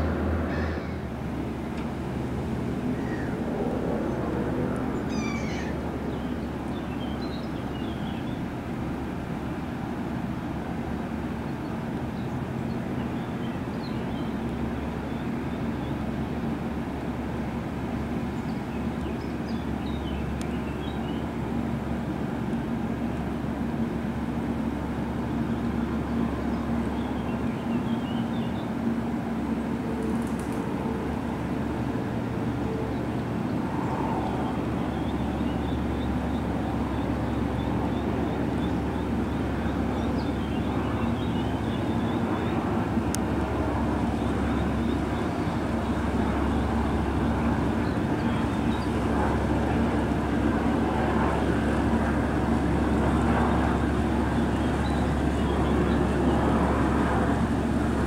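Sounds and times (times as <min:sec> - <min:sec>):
cargo boat diesel drone: 0:00.0 - 0:58.0.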